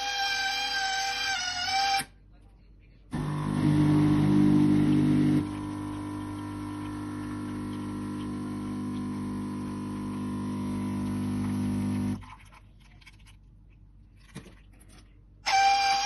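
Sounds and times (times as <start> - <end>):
espresso machine pump humming: 3.2 - 12.2.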